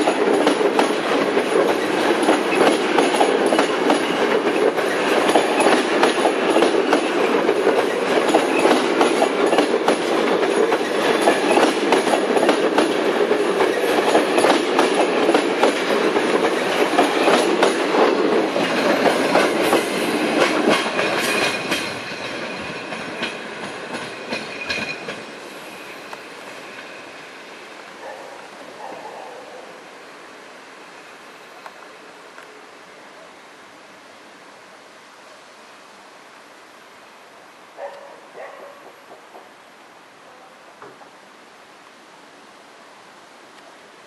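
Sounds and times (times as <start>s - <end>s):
train wheels clattering over rail joints: 0.0s - 25.5s.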